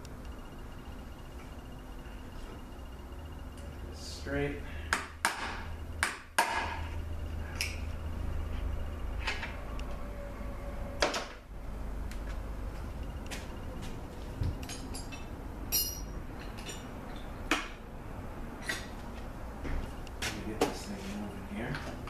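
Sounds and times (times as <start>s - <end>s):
low steady hum: 0.0s - 22.0s
metal tools clinking on workbench: 14.6s - 16.9s.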